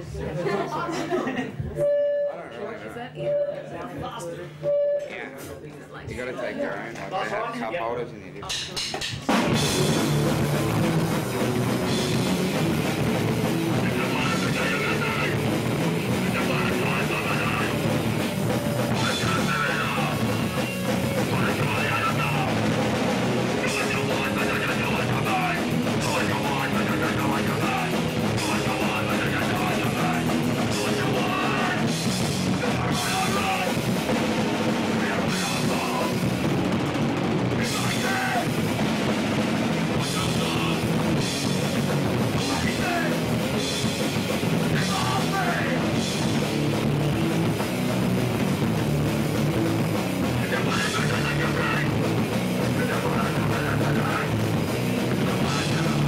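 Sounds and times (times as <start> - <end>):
drum kit: 8.4 - 56.0
bass guitar: 9.2 - 56.0
distorted electric guitar: 9.3 - 56.0
vocalist shouting into microphone: 18.9 - 20.3, 21.2 - 22.7, 23.6 - 31.9, 32.6 - 33.8, 37.6 - 38.6, 44.7 - 46.0.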